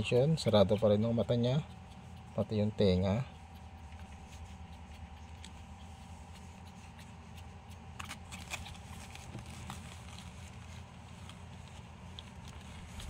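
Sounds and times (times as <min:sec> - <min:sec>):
puppy pad rustling: 0:00.0 - 0:13.0
steady low hum: 0:00.0 - 0:13.0
sharp crinkles: 0:03.5 - 0:13.0.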